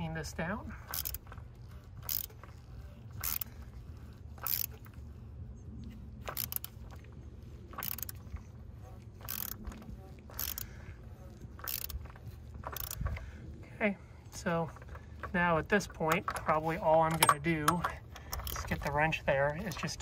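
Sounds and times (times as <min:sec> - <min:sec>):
ratchet pawl clicking: 0:00.8 - 0:05.0, 0:06.2 - 0:07.0, 0:07.7 - 0:08.5, 0:09.2 - 0:13.4, 0:14.6 - 0:20.0.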